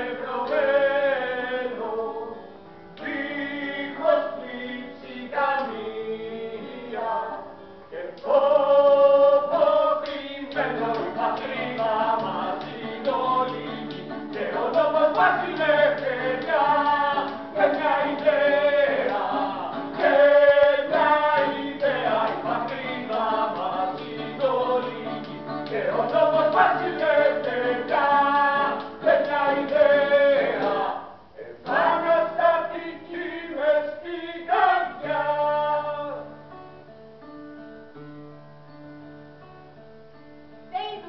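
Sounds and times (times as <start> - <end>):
men singing together: 0.0 - 2.4, 3.0 - 7.4, 8.0 - 36.3
plucked guitar: 6.5 - 31.0.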